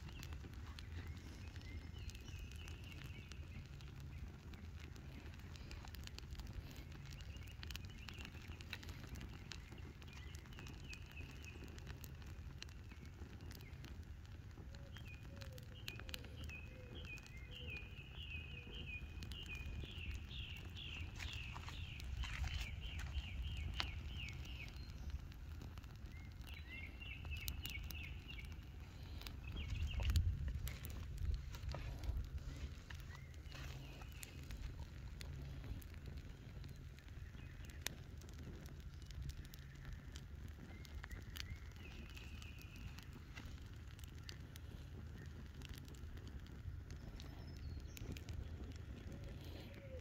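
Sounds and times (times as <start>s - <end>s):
fire crackling and popping: 0.0s - 50.0s
bird chirping: 14.7s - 25.2s, 26.0s - 35.8s
low rumble: 19.0s - 50.0s.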